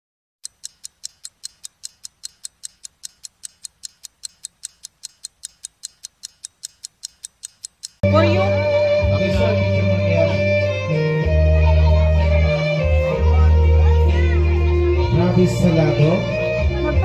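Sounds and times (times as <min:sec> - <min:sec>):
clock ticking: 0:00.4 - 0:08.0.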